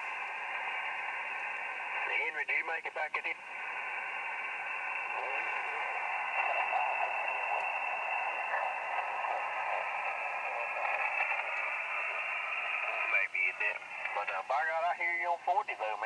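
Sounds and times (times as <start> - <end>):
radio band noise hiss: 0.0 - 16.0
faint voice on radio: 0.6 - 16.0.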